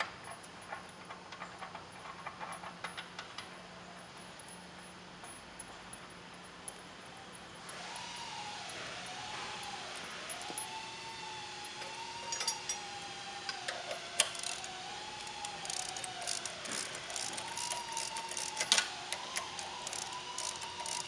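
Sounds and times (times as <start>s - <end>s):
socket ratchet clicking: 13.5s - 21.0s.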